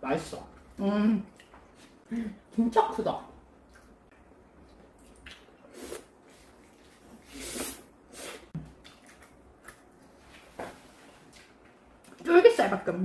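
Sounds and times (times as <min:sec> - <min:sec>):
wet chewing and slurping: 0:04.7 - 0:10.4.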